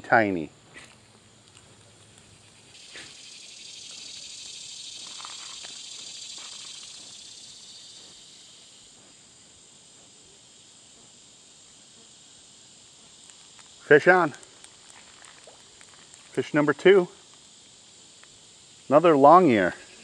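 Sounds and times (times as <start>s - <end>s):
high hissing insect buzz: 0.0s - 20.0s.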